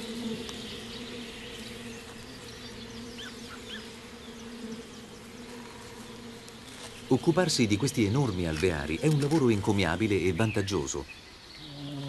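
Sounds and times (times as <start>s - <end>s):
honeybees buzzing: 0.0s - 12.0s.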